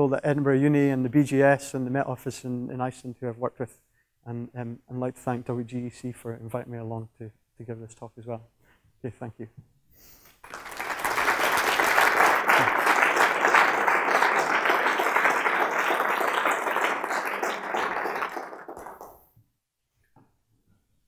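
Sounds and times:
audience applauding: 0:10.4 - 0:19.2.

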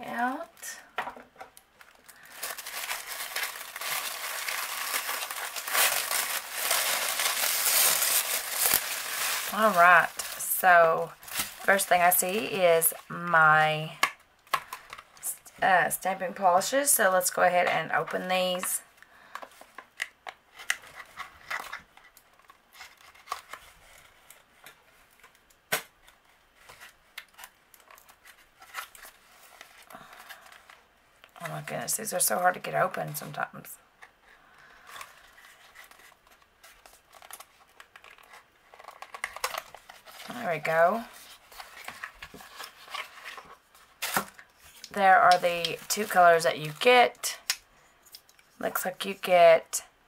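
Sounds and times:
tissue paper crinkling: 0:01.8 - 0:13.2, 0:34.8 - 0:46.9.

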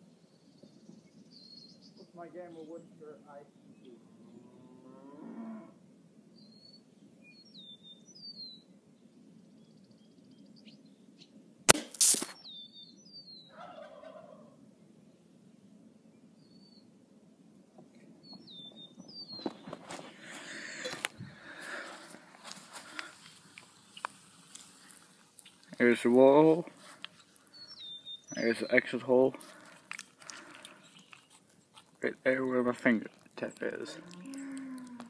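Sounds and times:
birds chirping: 0:00.0 - 0:05.7, 0:06.3 - 0:11.4, 0:12.3 - 0:16.9, 0:17.6 - 0:35.0
air rifle shot crack: 0:11.7 - 0:12.4.

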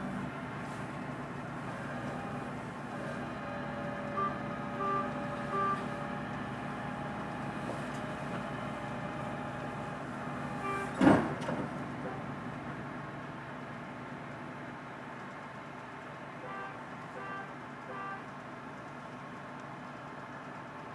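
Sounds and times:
heavy vehicle engines idling: 0:00.0 - 0:20.9
vehicle backup alarm beeping: 0:03.6 - 0:06.0, 0:10.4 - 0:11.0, 0:16.4 - 0:18.3.

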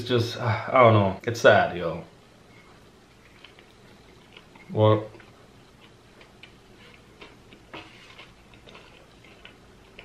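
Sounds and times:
person chewing food: 0:02.8 - 0:10.0.

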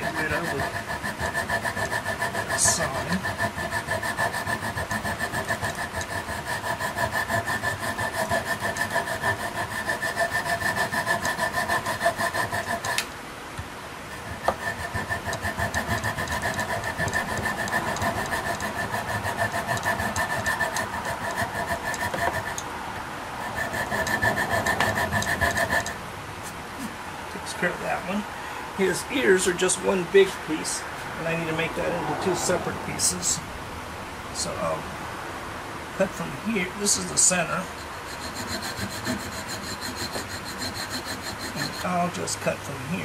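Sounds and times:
coping saw cutting wood: 0:00.0 - 0:13.1, 0:14.1 - 0:22.7, 0:23.4 - 0:26.0, 0:36.8 - 0:43.0.

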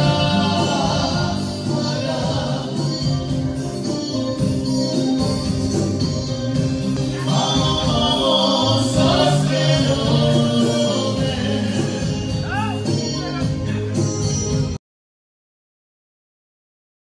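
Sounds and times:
man singing through microphone: 0:00.0 - 0:03.6, 0:07.0 - 0:14.0
electronic keyboard: 0:00.0 - 0:14.8.

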